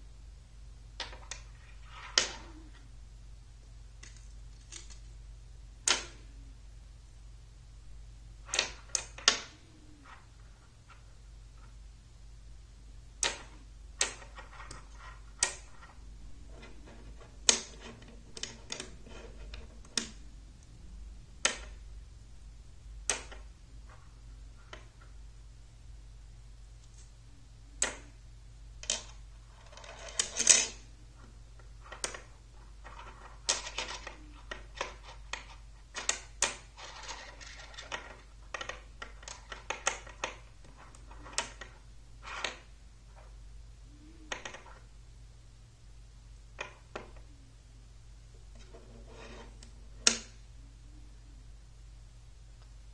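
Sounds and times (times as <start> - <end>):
magnetic rods clicking on steel balls: 13.2 - 20.2, 23.0 - 25.1.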